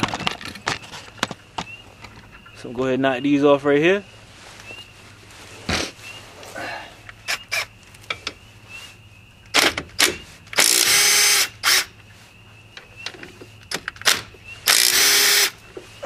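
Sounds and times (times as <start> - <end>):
cordless power tool running: 10.6 - 11.8, 14.7 - 15.5.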